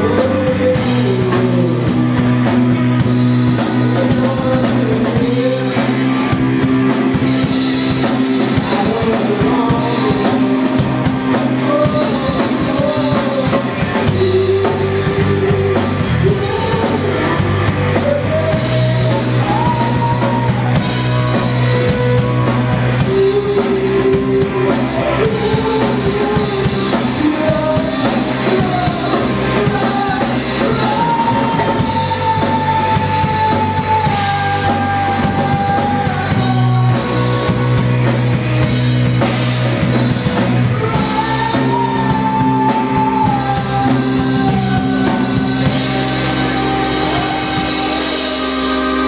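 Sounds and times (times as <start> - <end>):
rock band playing: 0.0 - 49.0
long high notes sliding down: 16.2 - 49.0.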